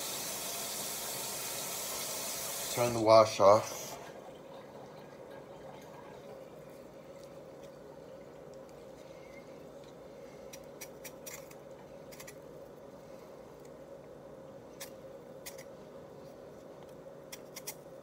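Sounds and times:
steady low hum: 0.0 - 18.0
vegetable peeler scraping potato: 17.3 - 17.8.

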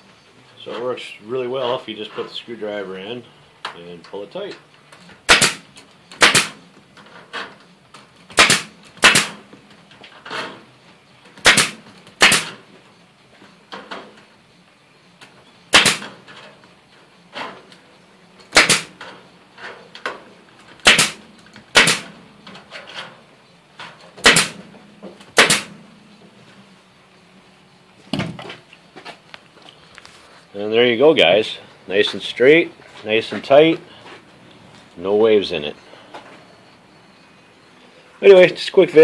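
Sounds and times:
staple gun shots: 5.2 - 6.6, 8.3 - 9.4, 11.4 - 12.6, 15.7 - 16.2, 18.5 - 19.0, 20.8 - 22.2, 24.2 - 24.6, 25.3 - 25.8.

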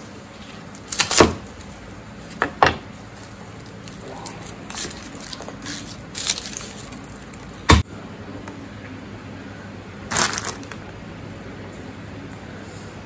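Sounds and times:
green beans crackling rustle: 0.3 - 7.6, 10.1 - 10.8
garlic crunching: 3.0 - 7.8.

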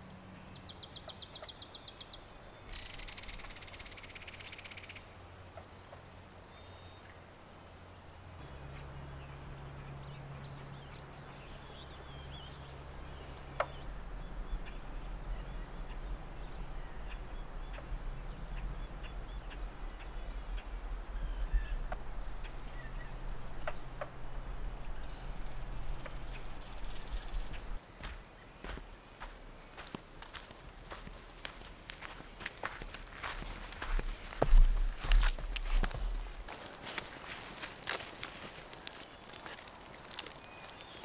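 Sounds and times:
low rumble: 8.4 - 27.8
small bird chirping: 32.6 - 41.0.

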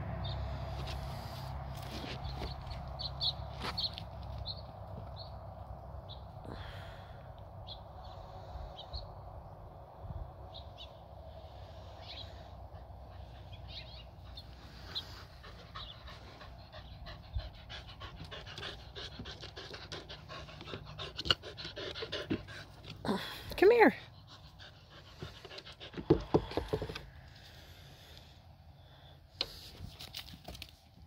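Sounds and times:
dog panting: 12.7 - 27.0.

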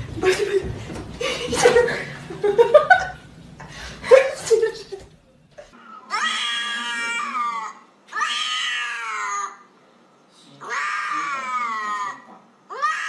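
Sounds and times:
cat meowing: 5.8 - 9.6, 10.6 - 13.0.

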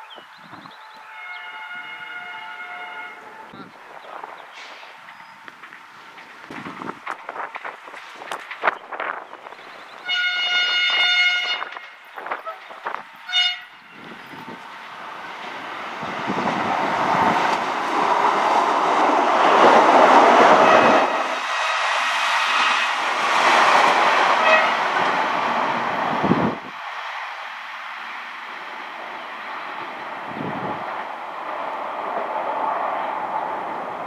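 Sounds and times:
train passing on rails: 0.0 - 34.0
train horn: 1.0 - 3.5, 10.0 - 12.6, 13.2 - 14.0, 20.5 - 21.2, 24.4 - 24.9.

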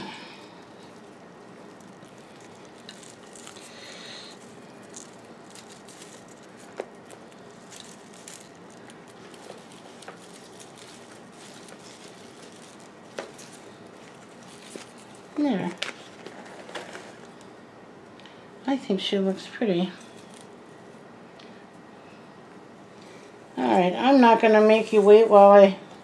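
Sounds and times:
hands rustling potting soil: 0.6 - 17.4.

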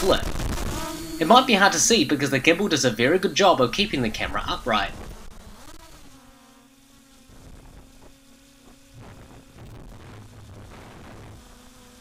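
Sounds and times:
wind noise bursts: 0.0 - 1.2, 3.9 - 5.5, 8.9 - 11.5
drone propellers buzzing: 0.0 - 12.0.

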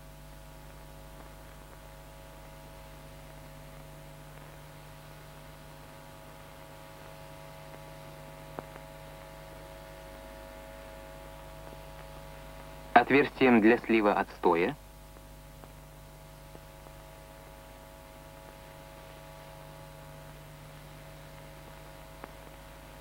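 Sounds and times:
electrical hum with tones: 0.0 - 23.0
faint hiss: 0.0 - 23.0.

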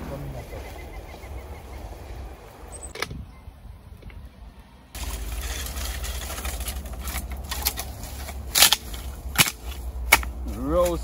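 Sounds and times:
dry branch cracking: 5.0 - 11.0
dry wood snapping: 5.0 - 11.0.

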